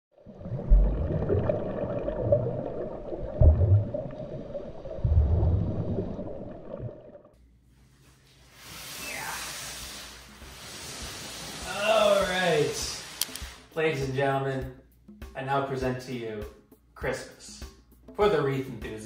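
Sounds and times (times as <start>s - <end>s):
watery bubbling: 0.1s - 7.4s.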